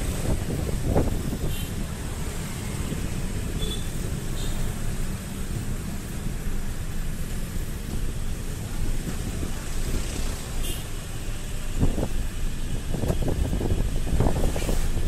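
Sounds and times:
wind buffeting microphone: 0.0 - 1.6, 11.6 - 15.0
motorcycle engine and road rumble: 0.0 - 15.0.

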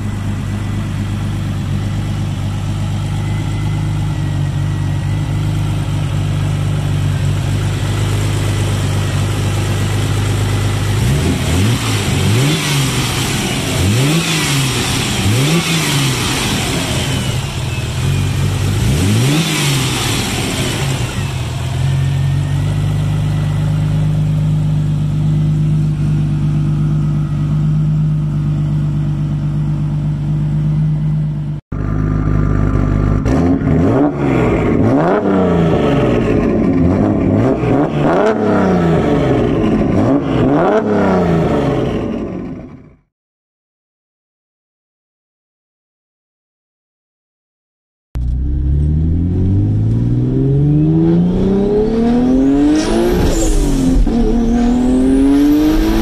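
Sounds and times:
car engine idling: 0.0 - 38.6
engine revving: 1.0 - 27.7, 31.7 - 43.0, 48.2 - 56.0.

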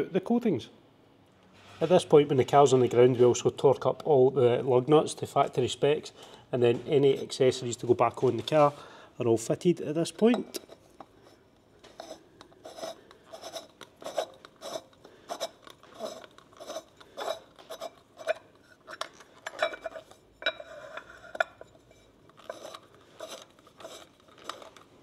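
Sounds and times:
raspy scraping of hand tool: 11.9 - 19.0.

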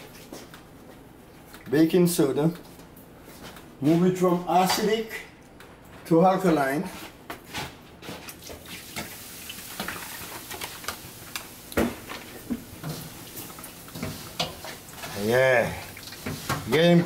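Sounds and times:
hands turning wet leaves: 12.2 - 17.0.

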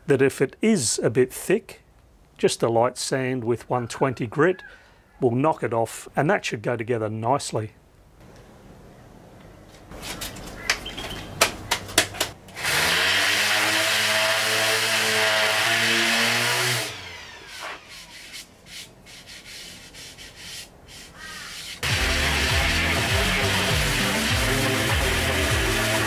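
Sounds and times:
electric sander running: 12.6 - 18.3, 21.8 - 26.0.

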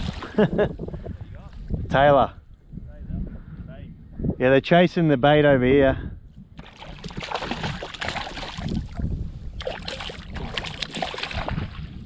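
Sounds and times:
water splashing and sloshing: 0.0 - 0.6, 6.6 - 12.0
fish thrashing at water surface: 6.6 - 9.0, 9.6 - 11.8.

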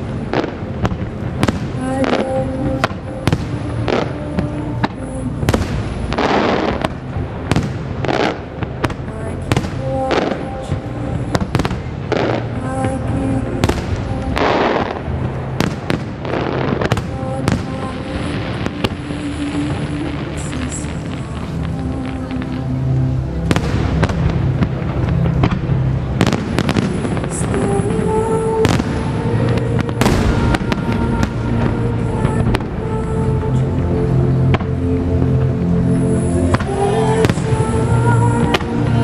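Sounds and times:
fireworks bangs: 0.0 - 22.6, 23.4 - 33.8, 36.4 - 39.0
fireworks rushing bursts: 0.0 - 39.0.

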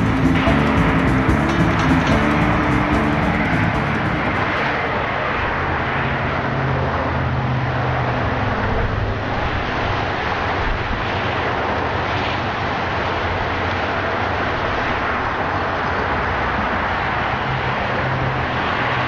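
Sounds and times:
car engine hum inside cabin: 0.0 - 5.0
wide rushing noise: 0.0 - 19.0.

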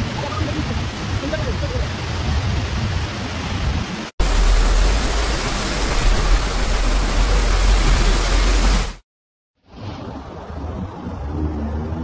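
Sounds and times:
floodwater rushing down waterfall: 0.0 - 9.0.

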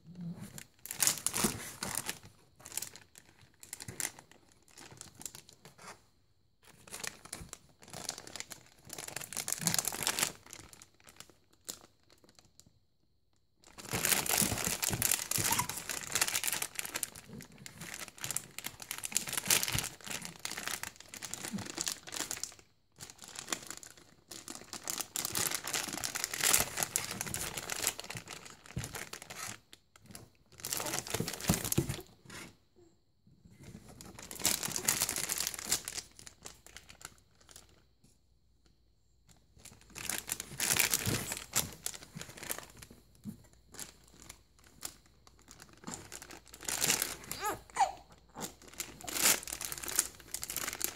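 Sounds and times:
foil snack bag crinkling: 13.6 - 29.6, 30.6 - 32.0, 34.1 - 37.8, 39.6 - 42.9, 43.8 - 47.6, 48.3 - 50.9.

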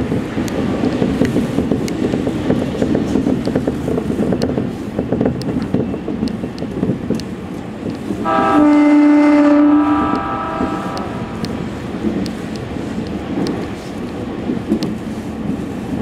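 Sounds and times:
electric train rumbling: 0.0 - 16.0
train horn blast: 8.2 - 11.7.

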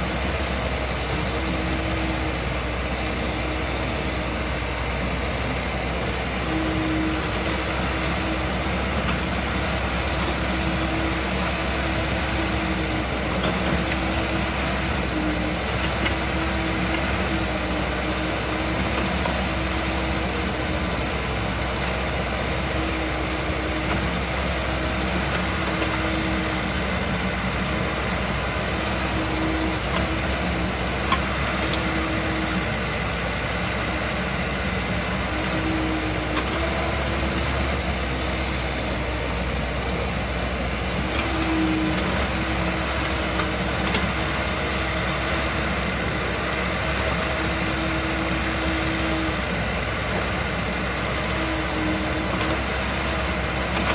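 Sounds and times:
excavator diesel engine: 0.0 - 53.9
higher hydraulic whine: 0.0 - 53.9.

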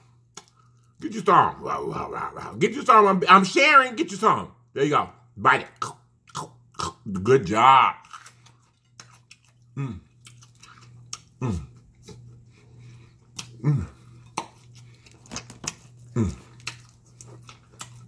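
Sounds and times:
man chewing food: 0.0 - 1.0, 5.8 - 7.4, 8.0 - 18.0
man humming mmm: 9.8 - 10.1, 11.4 - 11.8, 13.5 - 14.0, 16.1 - 16.6.

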